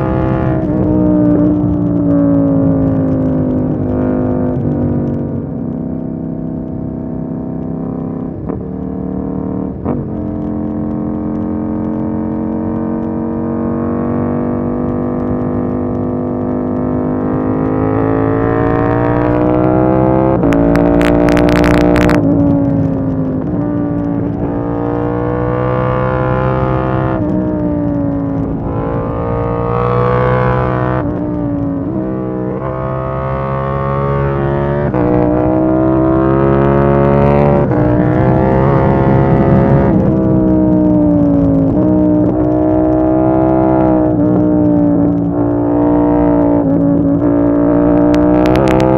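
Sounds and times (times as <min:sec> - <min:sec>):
motorcycle engine revving: 0:00.0 - 0:48.9
exhaust crackles: 0:15.2 - 0:48.9.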